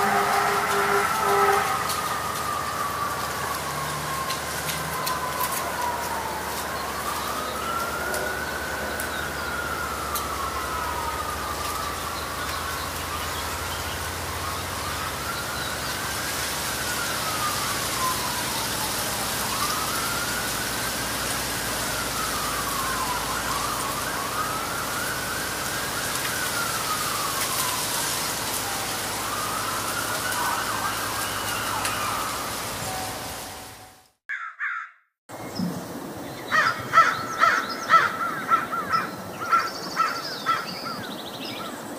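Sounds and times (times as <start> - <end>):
emergency siren wailing: 0.0 - 34.2
crow cawing: 34.3 - 35.0, 36.5 - 40.7.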